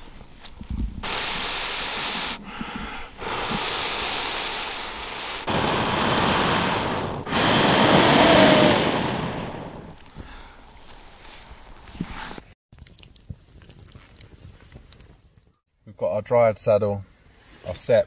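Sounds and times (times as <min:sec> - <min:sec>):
person blowing on embers: 0:01.0 - 0:12.4.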